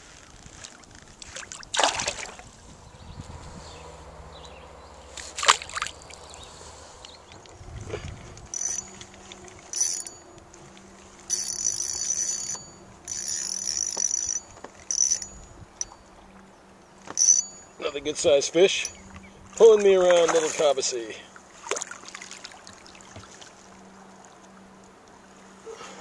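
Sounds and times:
fishing reel whirring: 8.4s - 10.4s, 11.2s - 16.0s, 17.1s - 17.6s.

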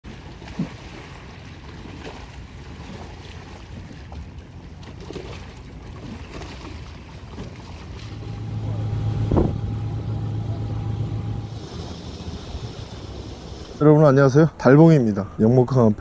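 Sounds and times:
wind rumble on microphone: 8.1s - 11.6s.

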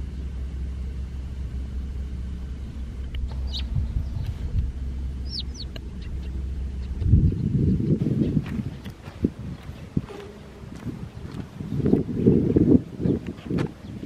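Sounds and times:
steady low rumble: 0.0s - 14.0s
bird chirps: 2.6s - 4.6s, 5.2s - 13.2s.

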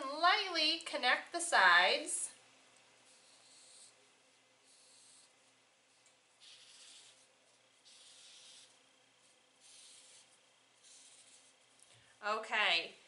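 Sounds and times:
marker scratching on paper: 3.0s - 4.0s, 4.6s - 11.8s.

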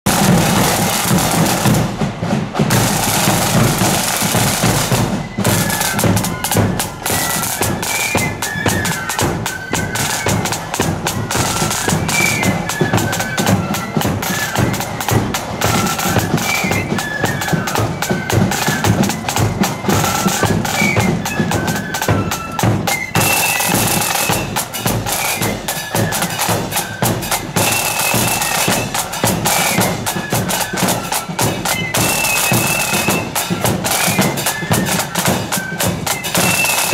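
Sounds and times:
snare drums rattling: 0.0s - 36.9s
flutes playing melody: 0.1s - 36.9s.

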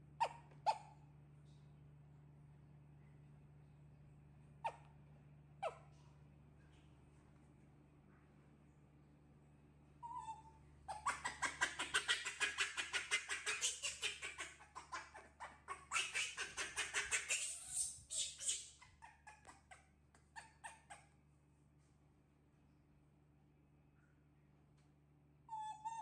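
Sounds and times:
baby monkey squealing: 0.2s - 1.0s, 4.6s - 4.9s, 5.6s - 5.9s, 10.0s - 21.1s, 25.5s - 26.0s.

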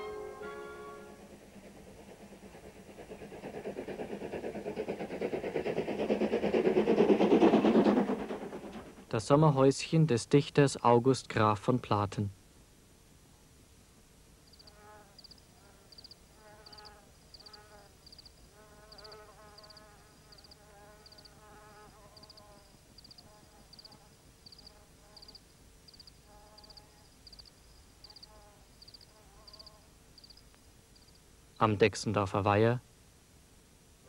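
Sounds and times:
crickets chirping: 14.4s - 31.3s.

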